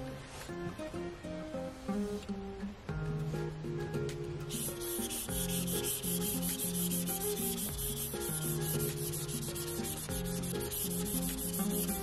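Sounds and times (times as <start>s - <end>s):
background music: 0.0s - 12.0s
stylus scratching on screen: 4.5s - 12.0s.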